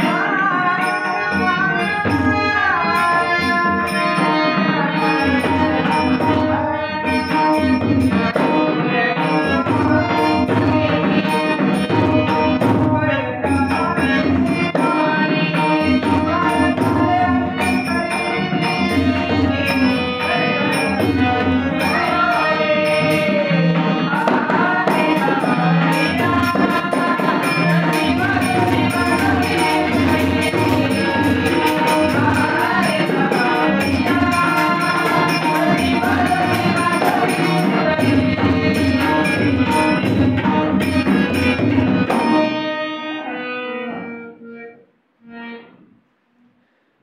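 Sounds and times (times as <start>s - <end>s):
men singing: 0.0s - 42.5s
tabla: 0.0s - 44.7s
harmonium: 0.0s - 45.9s
barrel drum: 15.6s - 42.5s
jingling hand cymbals: 15.7s - 42.4s.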